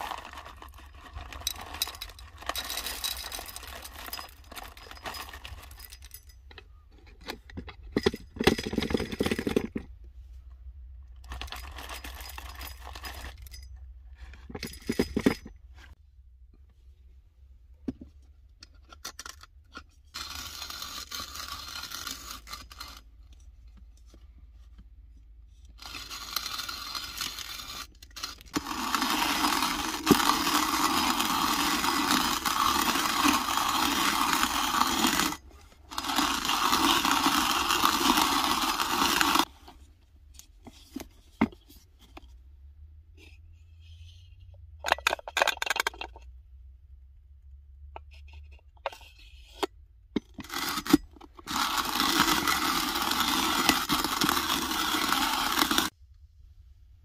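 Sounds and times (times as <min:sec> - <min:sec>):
hand coffee grinder grinding beans: 0:00.0 - 0:06.2, 0:11.3 - 0:13.6, 0:20.1 - 0:23.4, 0:25.7 - 0:39.7, 0:50.2 - 0:56.0.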